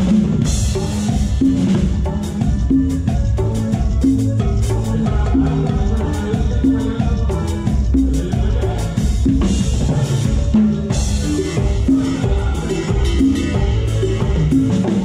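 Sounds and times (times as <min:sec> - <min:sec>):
live band music: 0:00.0 - 0:15.0.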